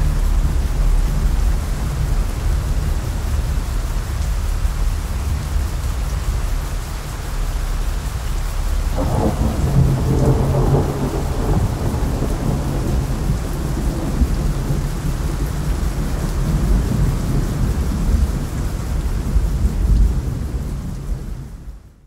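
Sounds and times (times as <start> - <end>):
steady rain: 0.0 - 22.0
rolling thunder: 8.6 - 21.6.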